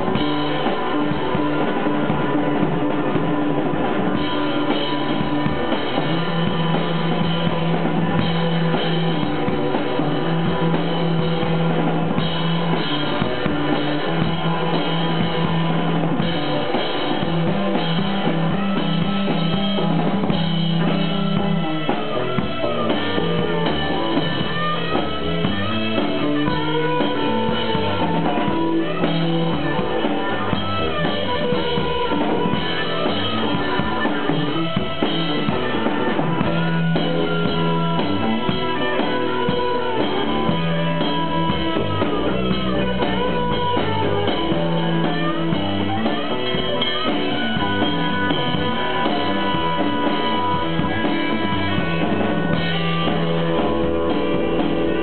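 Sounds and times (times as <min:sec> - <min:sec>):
live rock band playing: 0:00.0 - 0:55.0.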